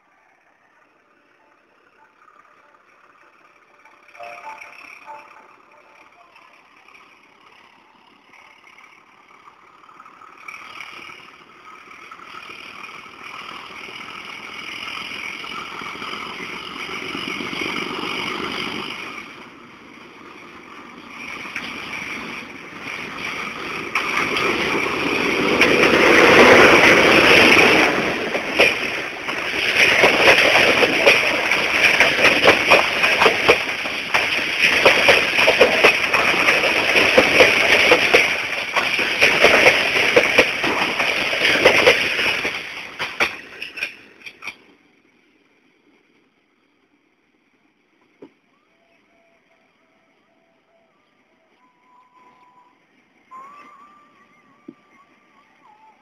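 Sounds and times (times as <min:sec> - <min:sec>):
diesel locomotive engine: 0:00.0 - 0:56.0
train wheels clicking over rail joints: 0:00.5 - 0:44.8.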